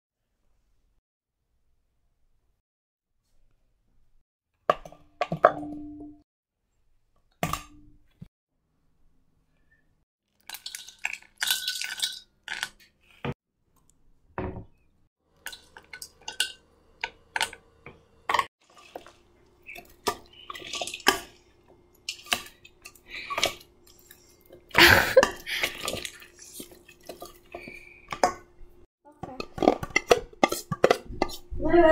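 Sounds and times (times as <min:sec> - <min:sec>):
metal utensil scraping bowl: 0:18.3 - 0:24.6, 0:29.2 - 0:31.6
utensils knocking in metal bowl: 0:29.2 - 0:31.5.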